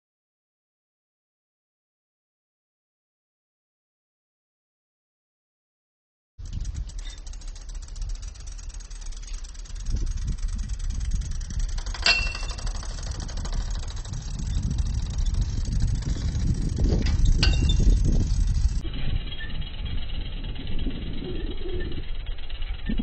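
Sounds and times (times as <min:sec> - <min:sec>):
bicycle rolling over rough ground: 0:06.4 - 0:23.0
metallic clanks of bike: 0:06.4 - 0:23.0
wind on microphone: 0:06.4 - 0:23.0.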